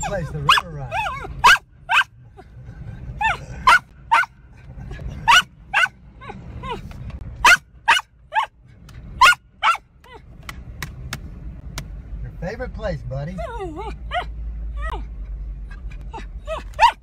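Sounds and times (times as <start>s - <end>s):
dog barking in high yips: 0.0s - 2.1s, 3.2s - 4.4s, 5.2s - 6.0s, 7.4s - 8.5s, 9.2s - 9.9s, 16.5s - 17.0s
car rumbling: 0.0s - 17.0s.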